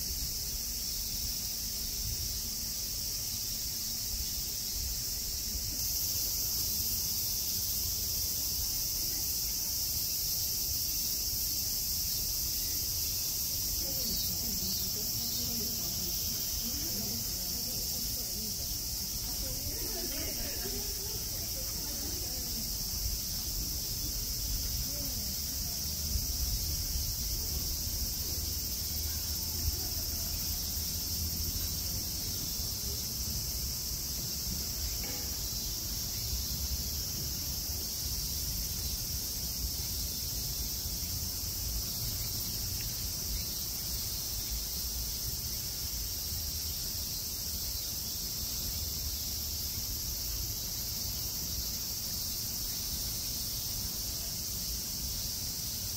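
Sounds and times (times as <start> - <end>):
night insects chirring: 0.0 - 55.9.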